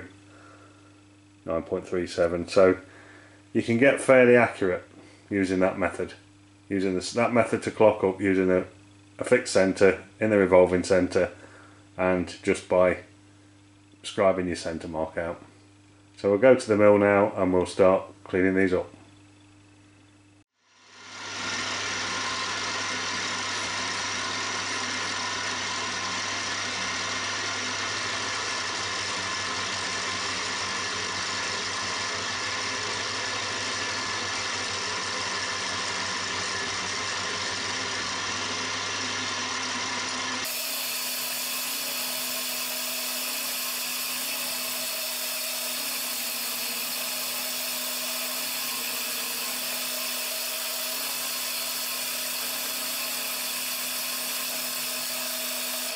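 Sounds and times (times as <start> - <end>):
milling machine cutting metal: 20.9 - 55.9.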